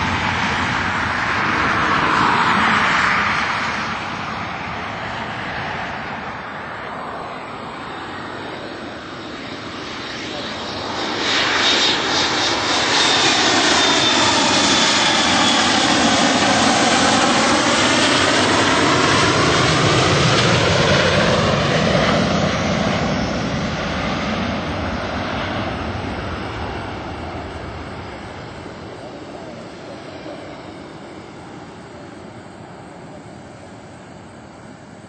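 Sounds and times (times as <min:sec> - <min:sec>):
high jet engine whine: 0:00.0 - 0:35.0
jet airliner roar passing: 0:00.0 - 0:35.0.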